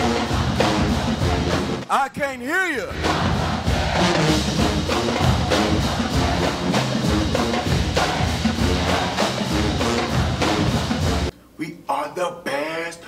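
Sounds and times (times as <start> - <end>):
drums beating: 0.0 - 1.9, 2.8 - 11.3
marching band playing: 0.0 - 1.9, 2.9 - 11.3.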